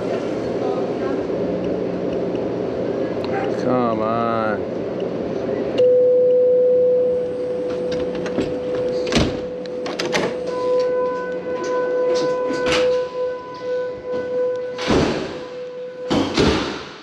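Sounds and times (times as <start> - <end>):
electric hum: 0.0 - 17.0
higher tones: 5.8 - 16.3
sharp knocks: 16.1 - 17.0.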